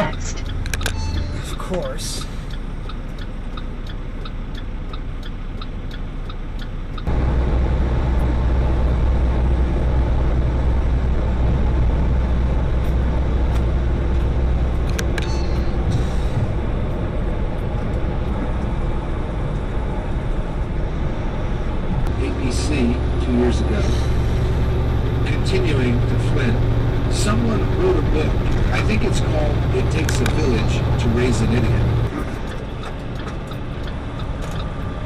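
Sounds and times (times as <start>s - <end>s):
regular ticking: 0.0s - 7.3s, 24.7s - 35.0s
road noise: 0.0s - 35.0s
truck engine drone cruising: 0.0s - 35.0s
truck engine idling: 0.0s - 35.0s.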